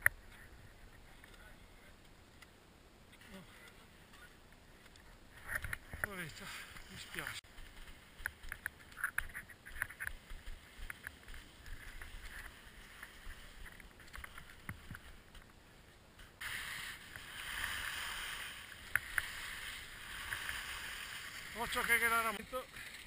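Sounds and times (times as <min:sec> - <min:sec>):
skis sliding over snow: 0:05.4 - 0:15.4, 0:16.2 - 0:23.0.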